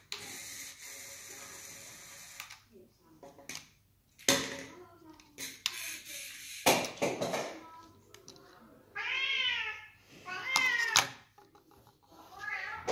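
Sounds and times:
cat meowing: 9.0s - 11.1s, 12.3s - 12.9s.

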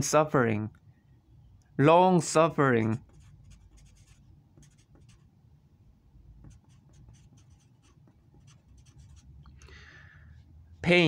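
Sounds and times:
marker pen scratching on paper: 3.0s - 5.4s, 6.4s - 9.4s.

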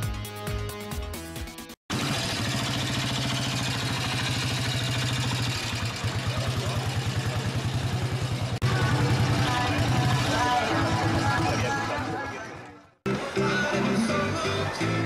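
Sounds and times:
motorcycle engine at low revs: 1.9s - 11.6s.

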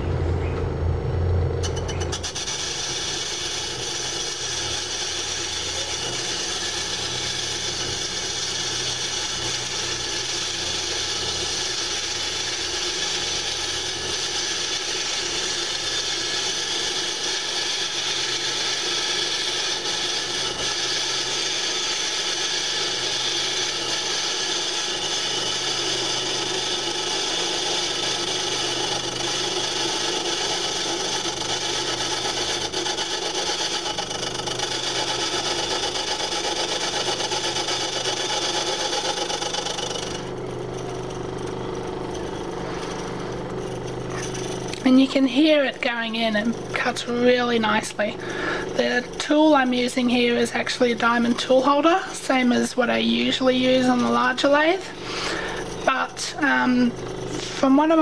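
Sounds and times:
lathe motor hum: 0.0s - 58.0s
lathe tool scraping metal: 1.6s - 58.0s.

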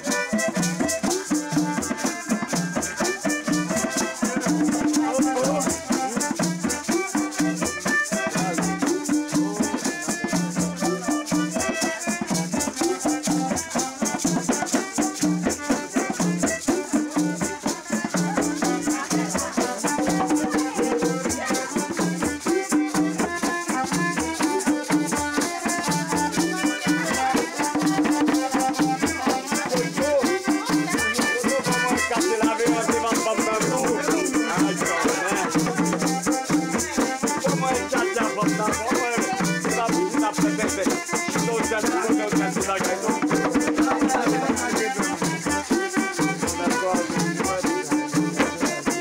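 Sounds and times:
accordion melody: 0.0s - 49.0s
hand drums: 0.0s - 49.0s.

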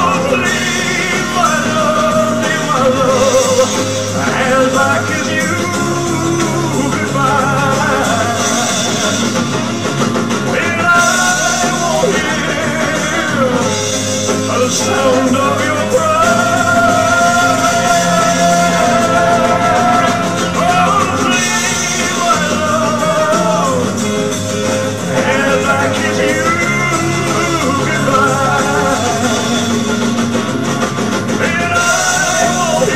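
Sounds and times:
man singing into microphone: 0.0s - 24.4s, 25.0s - 30.4s, 31.3s - 32.9s
karaoke backing track: 0.0s - 32.9s.

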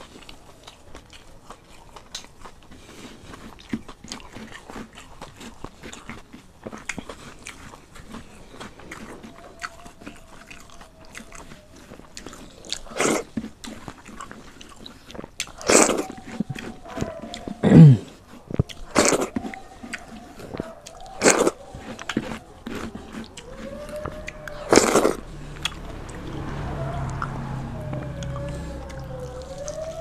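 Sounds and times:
wet chewing and mouth smacks: 0.0s - 26.3s, 27.9s - 30.0s
rice squishing by hand: 12.8s - 25.2s.

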